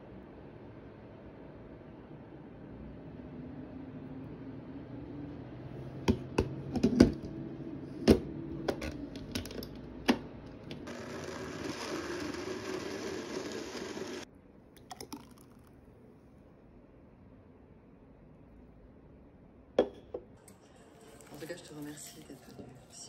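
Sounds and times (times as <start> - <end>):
blender motor running: 10.8 - 14.3.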